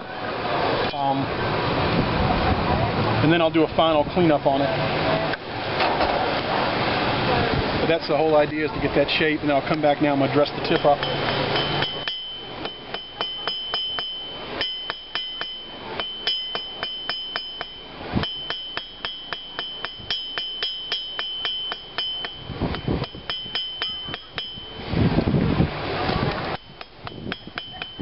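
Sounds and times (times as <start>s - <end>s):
hammer striking iron on anvil: 10.6s - 24.9s, 26.4s - 28.0s.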